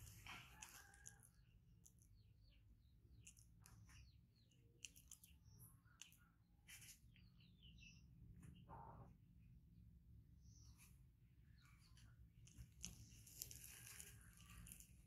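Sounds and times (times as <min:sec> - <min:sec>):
soft rustle: 0:12.5 - 0:15.0.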